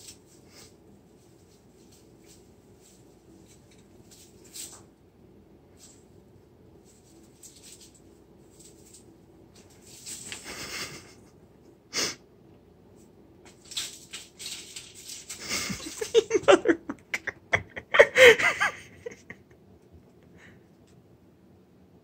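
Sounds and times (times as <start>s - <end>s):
artificial tree branches rustling: 0.0s - 5.1s, 5.7s - 11.2s, 13.0s - 16.6s
person laughing: 10.4s - 11.4s, 15.4s - 19.6s.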